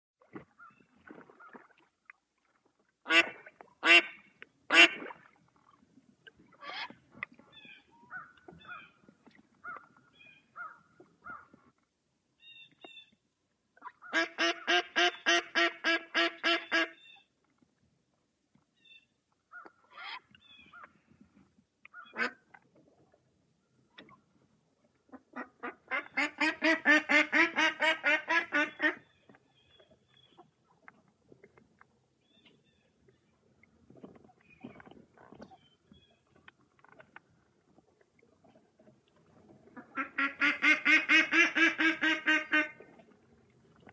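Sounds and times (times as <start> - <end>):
duck quacking: 3.1 - 5.0, 14.0 - 17.0, 22.0 - 22.4, 25.1 - 29.0, 39.8 - 42.8.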